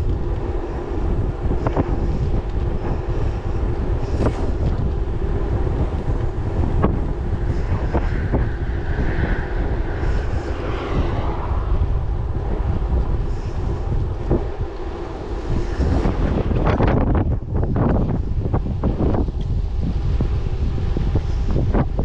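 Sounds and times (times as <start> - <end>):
road noise rumble: 0.0 - 22.0
wind buffeting microphone: 0.0 - 22.0.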